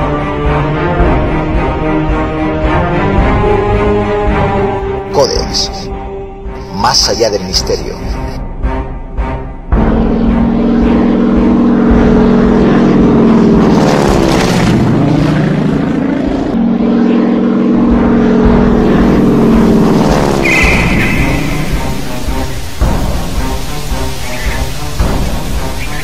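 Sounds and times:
propeller plane engine passing: 0:09.7 - 0:26.0.

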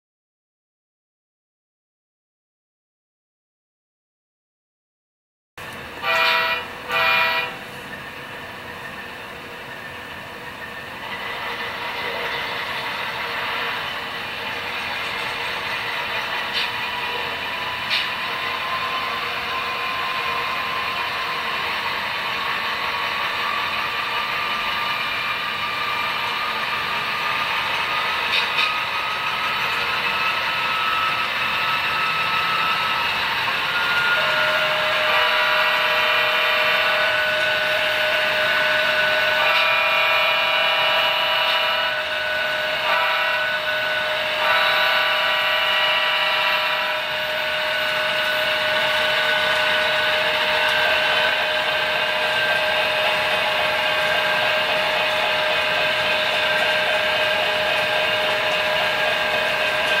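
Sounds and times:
model train mechanical whine: 0:05.6 - 1:00.0
train horn blasts: 0:06.0 - 0:07.8, 0:28.3 - 1:00.0.

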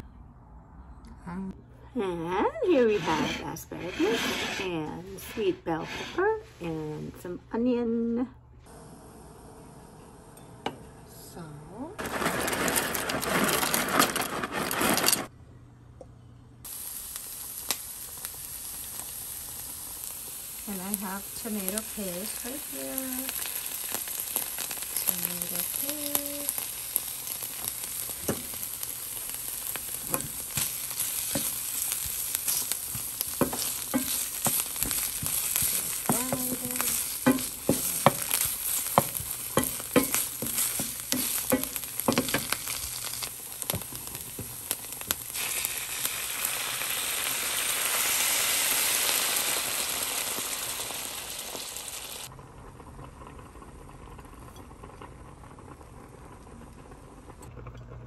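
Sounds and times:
spatula scraping pan: 0:02.7 - 0:06.8, 0:29.8 - 0:44.2
onions sizzling in frying pan: 0:11.4 - 0:15.3, 0:16.6 - 0:52.3.

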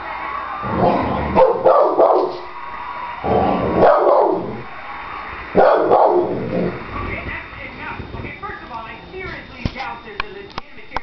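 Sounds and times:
dog barking: 0:01.3 - 0:02.4, 0:03.8 - 0:04.5, 0:05.6 - 0:06.4.

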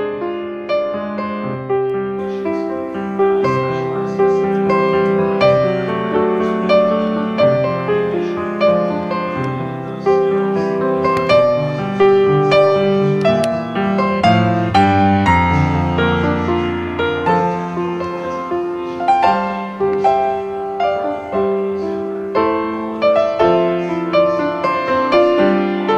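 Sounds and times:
piano music: 0:00.0 - 0:25.9.

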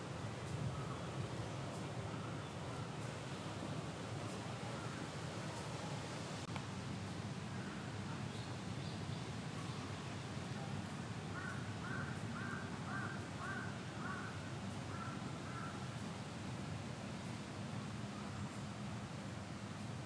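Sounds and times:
low background noise: 0:00.0 - 0:20.0
distant crow cawing: 0:11.3 - 0:15.9.

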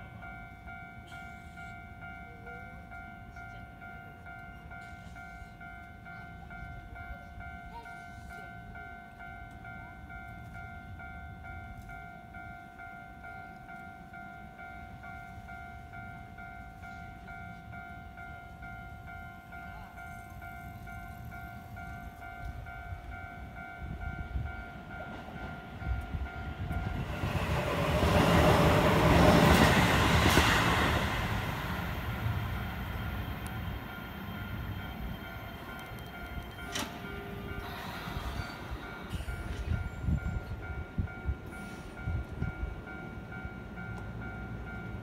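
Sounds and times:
electric train passing: 0:00.0 - 0:45.0
steady high tone: 0:00.0 - 0:45.0.

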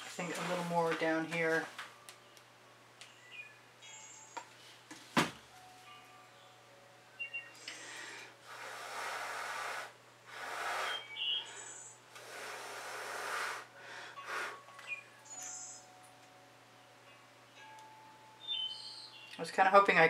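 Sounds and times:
person blowing breathy puffs: 0:07.7 - 0:14.6.

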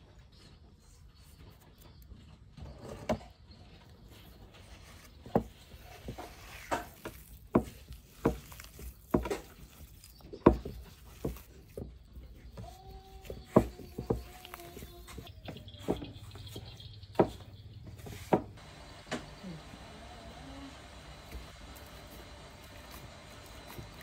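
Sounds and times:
hands squelching mashed potato: 0:04.0 - 0:18.6, 0:20.7 - 0:24.0.

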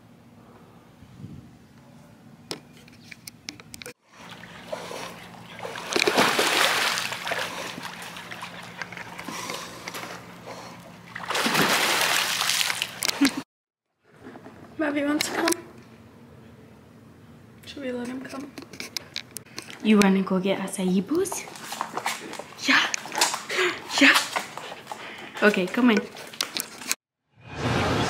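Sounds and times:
water splashing in pool: 0:04.1 - 0:10.2, 0:11.0 - 0:13.4.

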